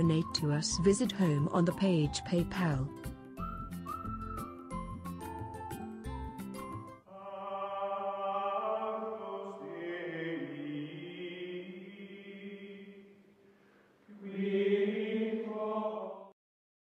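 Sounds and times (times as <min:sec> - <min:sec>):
choir chanting slowly: 0:07.1 - 0:13.2, 0:14.1 - 0:16.4.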